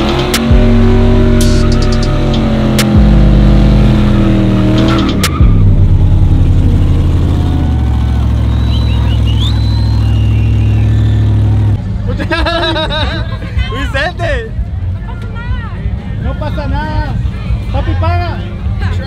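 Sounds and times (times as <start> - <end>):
truck engine revving: 0.0 - 13.0.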